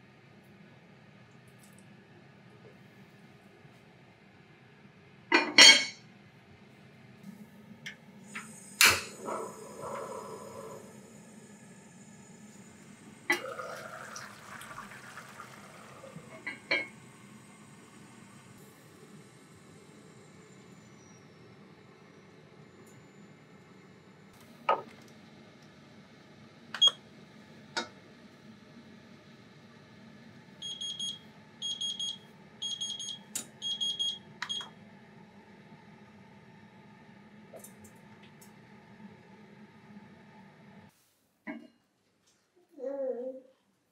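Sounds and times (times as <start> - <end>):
kitchen timer alarm beeping: 26.8 - 27.0, 30.6 - 34.7.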